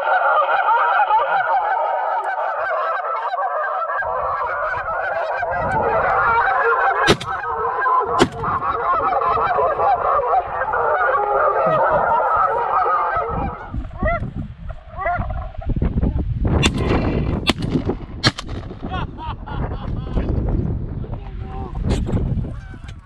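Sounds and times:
geese honking: 0:00.0 - 0:15.9
shotgun shots: 0:07.1 - 0:07.5, 0:08.2 - 0:08.7, 0:16.6 - 0:18.8.

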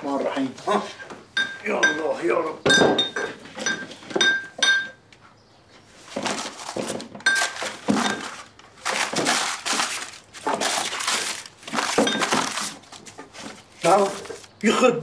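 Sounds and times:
glassy clink: 0:01.4 - 0:05.0, 0:07.2 - 0:08.3, 0:12.0 - 0:12.5
rustling and crumpling: 0:05.8 - 0:14.7.

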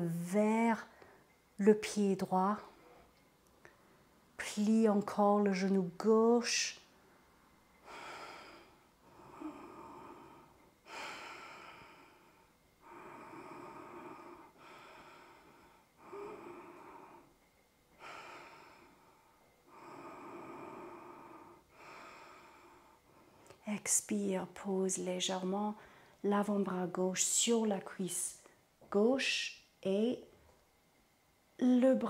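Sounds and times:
woman breathing slowly: 0:00.9 - 0:01.5, 0:02.6 - 0:04.3, 0:06.8 - 0:23.6, 0:25.8 - 0:26.2.

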